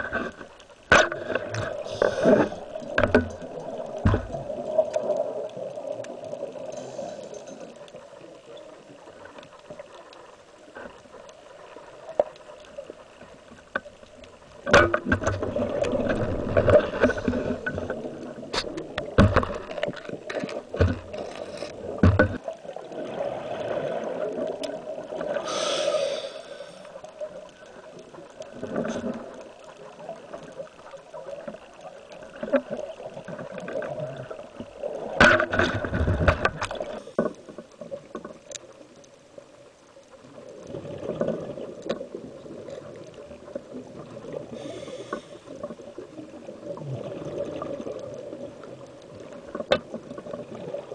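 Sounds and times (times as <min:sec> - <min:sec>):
sharp clicks and knocks: 0:00.0 - 0:04.4, 0:14.6 - 0:21.4, 0:22.0 - 0:22.4
underwater exhaled bubbles: 0:00.0 - 0:39.0, 0:40.1 - 0:50.9.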